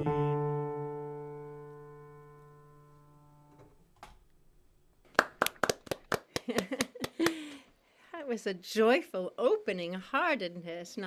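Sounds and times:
digital piano chord: 0:00.0 - 0:03.6
hand claps: 0:05.1 - 0:07.6.

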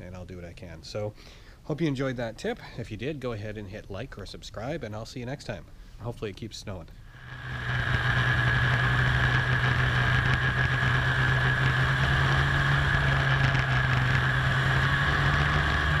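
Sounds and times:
snowmobile engine droning: 0:07.2 - 0:16.0.

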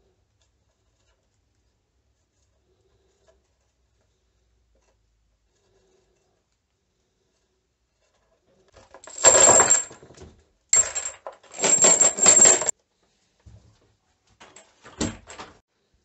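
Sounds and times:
metal keys rattling into plastic bottle: 0:09.0 - 0:10.1, 0:10.8 - 0:12.7.

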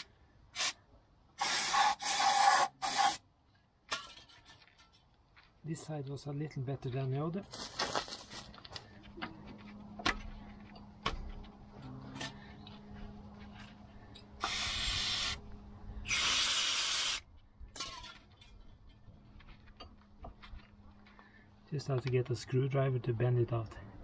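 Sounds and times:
aerosol spray can hissing: 0:00.6 - 0:00.8, 0:01.4 - 0:03.2, 0:14.4 - 0:15.4, 0:16.1 - 0:17.2.

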